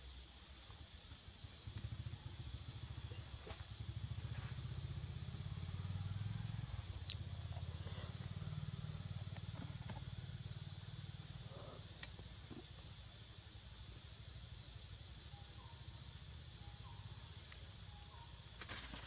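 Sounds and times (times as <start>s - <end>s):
steady high hiss: 0.0s - 19.0s
small engine rumbling: 0.8s - 19.0s
faint clicks: 12.0s - 12.6s.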